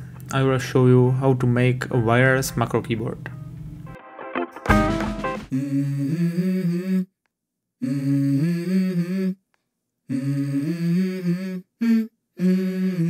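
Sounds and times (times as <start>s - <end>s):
hummed vocal chords: 5.5s - 7.1s, 7.8s - 9.4s, 10.1s - 13.0s.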